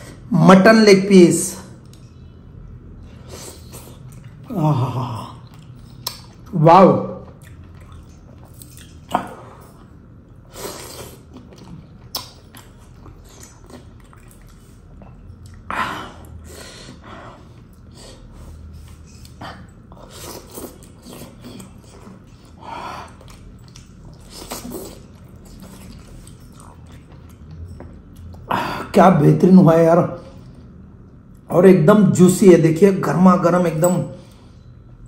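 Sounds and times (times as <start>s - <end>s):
biting and chewing meat: 7.3s - 15.7s.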